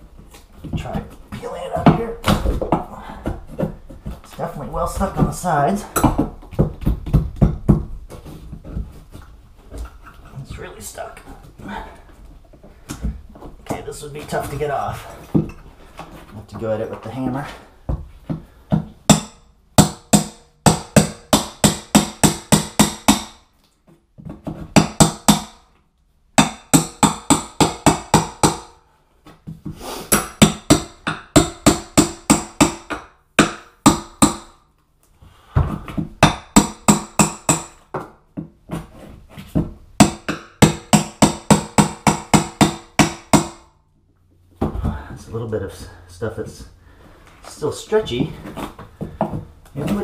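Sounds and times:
hammer striking a chisel: 0:19.1 - 0:23.4, 0:24.7 - 0:25.6, 0:26.4 - 0:28.8, 0:30.1 - 0:34.6, 0:36.2 - 0:38.1, 0:40.0 - 0:43.7.

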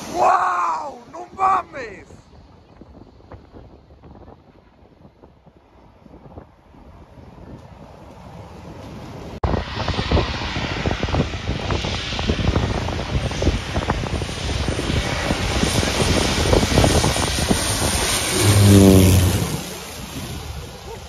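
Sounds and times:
aircraft engines roaring: 0:05.7 - 0:21.0.

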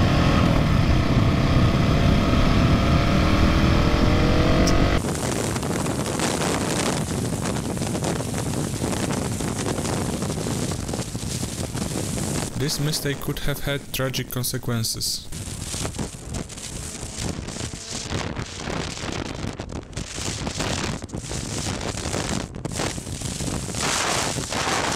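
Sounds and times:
motorcycle engine accelerating: 0:00.0 - 0:08.0, 0:15.4 - 0:21.2
wind noise on microphone: 0:00.0 - 0:13.4, 0:15.3 - 0:24.9
motorcycle road rush at speed: 0:00.0 - 0:14.1, 0:15.3 - 0:24.9.

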